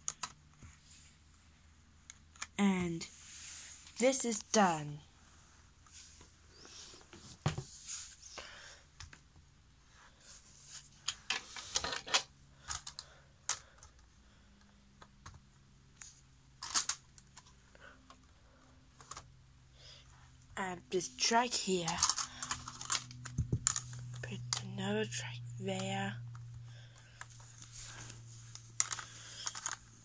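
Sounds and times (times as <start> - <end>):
plastic track pieces clicking: 16.6 - 17.5, 21.9 - 24.0, 28.8 - 29.9.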